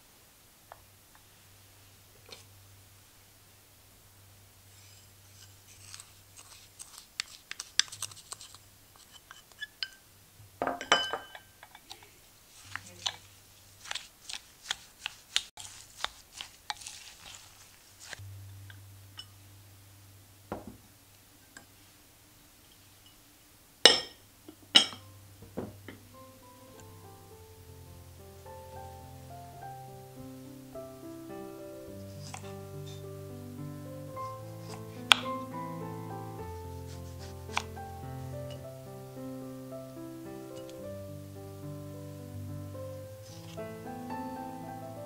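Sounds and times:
faint low electrical hum: 0:00.0 - 0:45.0
wooden spoon stirring fruit: 0:04.7 - 0:10.0, 0:11.8 - 0:18.2, 0:31.9 - 0:38.7, 0:43.2 - 0:43.7.

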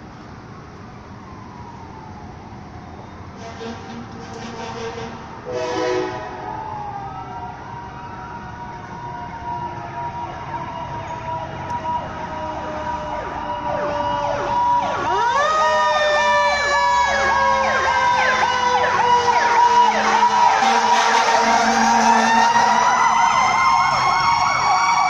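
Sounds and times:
fire siren winding down: 0:01.0 - 0:03.3, 0:05.5 - 0:25.0
electronic siren yelping: 0:09.0 - 0:25.0.

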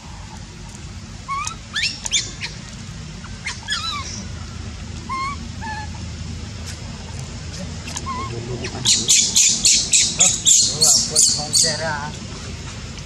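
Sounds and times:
baby macaque crying: 0:01.3 - 0:04.4, 0:05.0 - 0:06.1, 0:07.8 - 0:11.8.

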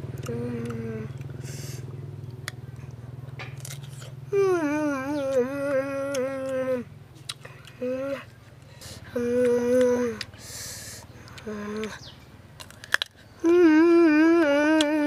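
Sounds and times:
low motor hum: 0:00.0 - 0:15.0
person humming: 0:00.1 - 0:01.8, 0:04.3 - 0:06.9, 0:07.5 - 0:12.0, 0:13.4 - 0:15.0.

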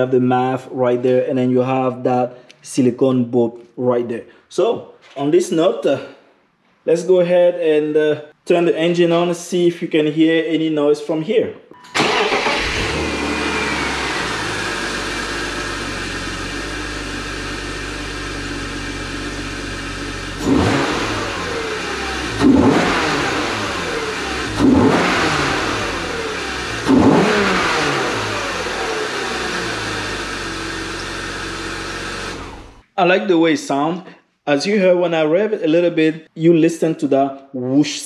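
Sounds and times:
car engine idling and revving: 0:12.0 - 0:32.8.

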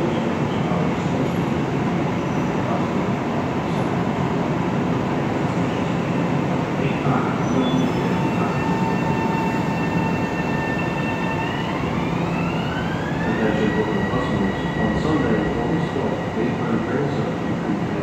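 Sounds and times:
train cars rumbling on rails: 0:00.0 - 0:18.0
electric train propulsion whine: 0:07.0 - 0:18.0.

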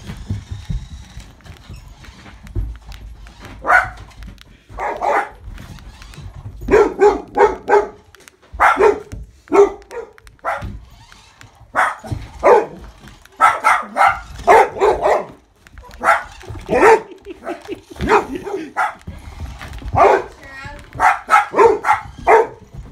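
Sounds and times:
dog barking: 0:03.6 - 0:04.0, 0:04.8 - 0:05.4, 0:06.7 - 0:08.0, 0:08.6 - 0:10.7, 0:11.7 - 0:12.8, 0:13.4 - 0:17.2, 0:18.0 - 0:19.0, 0:20.0 - 0:20.3, 0:20.9 - 0:22.7.

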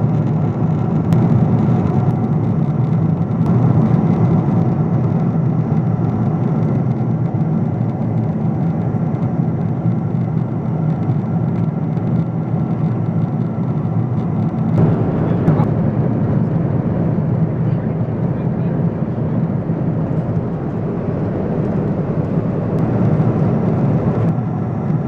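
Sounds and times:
airliner cabin noise: 0:00.0 - 0:25.0
jet engines: 0:00.0 - 0:25.0
low rush of airflow: 0:14.8 - 0:25.0.

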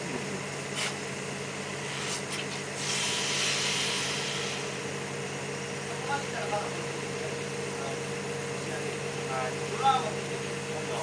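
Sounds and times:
machinery humming: 0:00.0 - 0:11.0
rush of hiss: 0:01.8 - 0:04.8.

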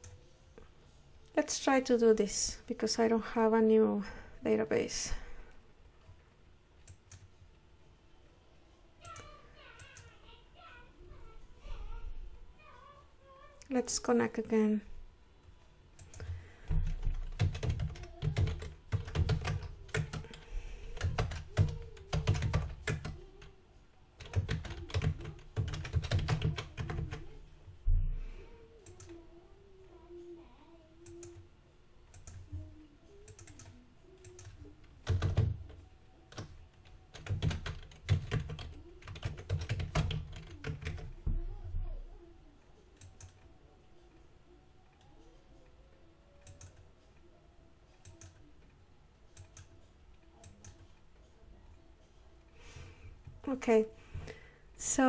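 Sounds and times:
typing on computer keyboard: 0:06.8 - 0:07.3, 0:16.0 - 0:23.4, 0:24.2 - 0:27.3, 0:32.1 - 0:32.5, 0:33.2 - 0:41.2, 0:46.4 - 0:46.8, 0:48.0 - 0:48.5, 0:49.3 - 0:49.8, 0:50.4 - 0:50.9.

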